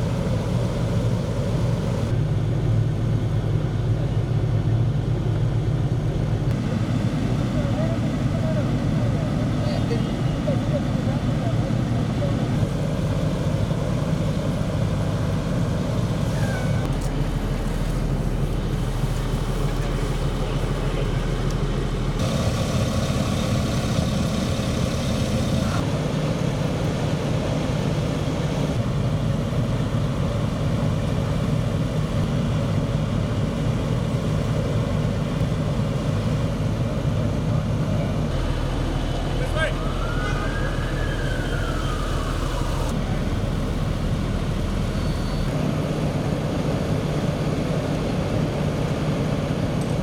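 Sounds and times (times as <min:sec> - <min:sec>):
city street noise: 0:00.0 - 0:50.0
large vehicle engines rumbling: 0:00.0 - 0:50.0.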